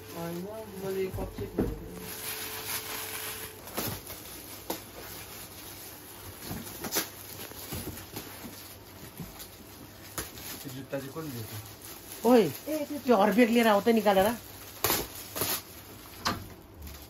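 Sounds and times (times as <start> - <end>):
plastic bags rustling and crinkling: 0.0 - 17.0.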